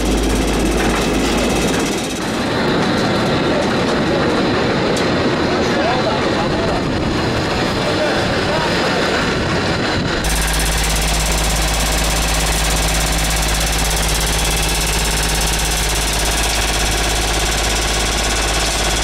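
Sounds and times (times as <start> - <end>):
vibrating screen droning: 0.0 - 2.8, 10.2 - 19.0.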